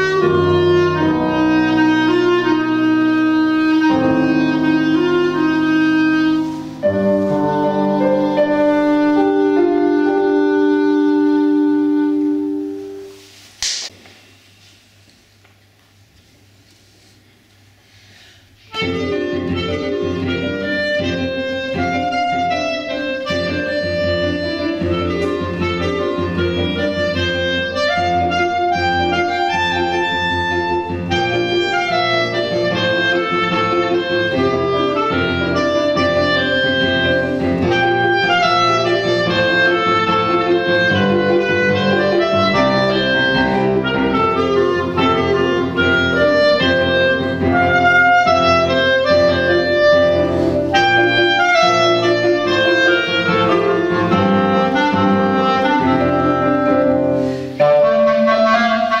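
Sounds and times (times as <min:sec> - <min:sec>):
clarinet melody: 0:00.0 - 0:13.4, 0:18.6 - 0:59.0
piano chords: 0:00.0 - 0:13.8, 0:18.7 - 0:59.0.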